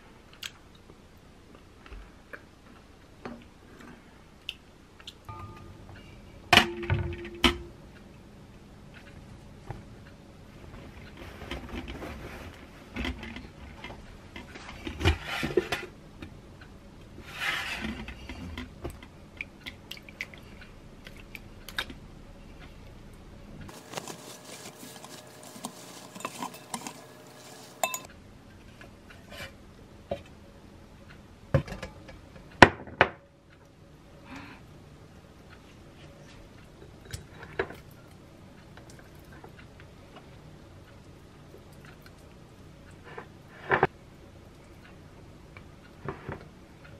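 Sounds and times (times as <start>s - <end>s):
cheesecloth rustling: 23.7s - 28.1s
metal sieve and pot clinking: 23.7s - 28.1s.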